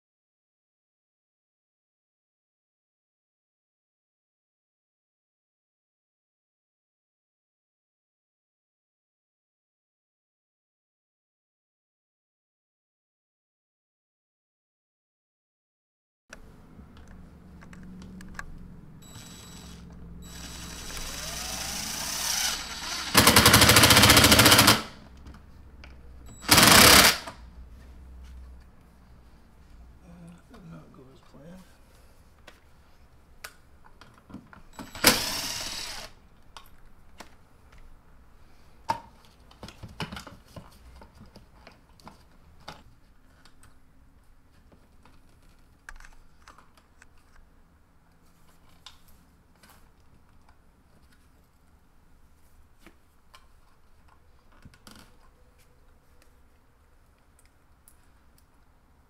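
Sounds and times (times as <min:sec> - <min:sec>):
light clicks and taps of tools: 0:52.8 - 0:58.8.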